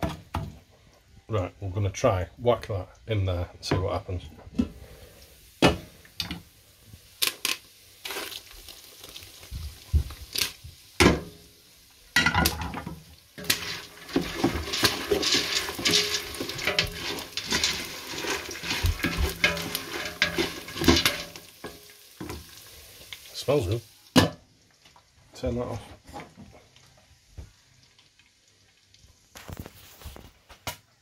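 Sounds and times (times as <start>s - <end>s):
sugar syrup sizzling: 1.3s - 25.8s
cookware knocking and clinking: 12.2s - 21.8s
wooden spoon scraping pot: 12.7s - 21.4s.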